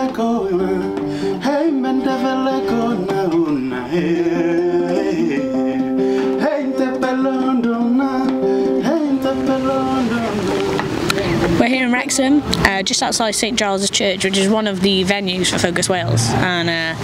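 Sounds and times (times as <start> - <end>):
man singing: 0.0 - 11.4
acoustic guitar: 0.0 - 17.0.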